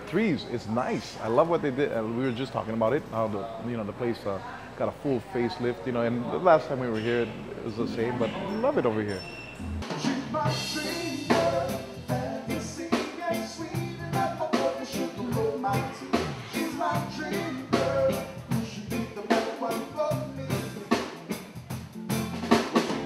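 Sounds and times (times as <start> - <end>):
drum kit beat: 9.6 - 23.0
man singing into microphone: 10.0 - 21.2.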